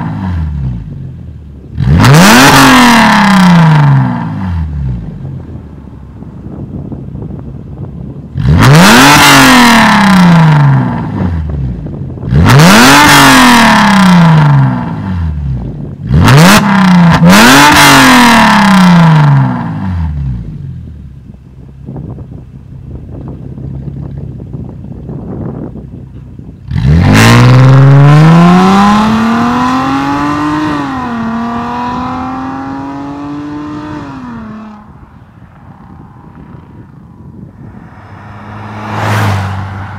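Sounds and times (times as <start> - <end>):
car engine revving: 1.6 - 5.7, 8.2 - 20.6, 26.7 - 39.9
car accelerating hard: 1.8 - 5.1, 8.4 - 11.3, 12.2 - 15.4, 16.1 - 20.2, 26.7 - 39.9.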